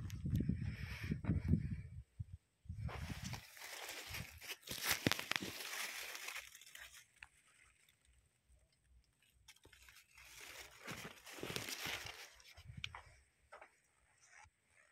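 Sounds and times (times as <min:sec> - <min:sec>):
rustling and crunching: 0:02.8 - 0:13.2.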